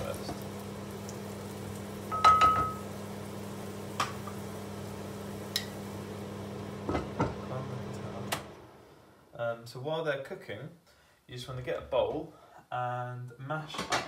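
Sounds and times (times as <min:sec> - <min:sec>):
mushrooms sizzling in frying pan: 0:00.0 - 0:09.1
extractor fan hum: 0:00.0 - 0:09.4.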